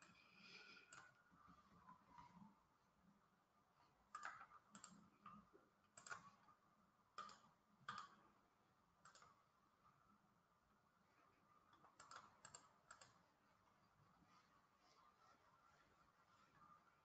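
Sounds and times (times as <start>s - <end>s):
mouse and keyboard clicks: 4.1s - 6.4s, 7.2s - 8.2s, 9.0s - 9.4s, 11.8s - 13.2s.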